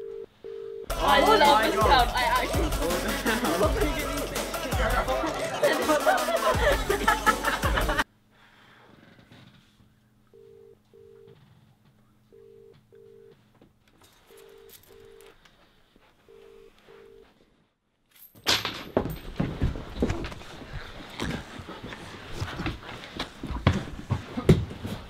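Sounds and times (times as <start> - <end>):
telephone ringback tone: 0.0 - 0.9, 10.3 - 11.4, 12.3 - 13.3.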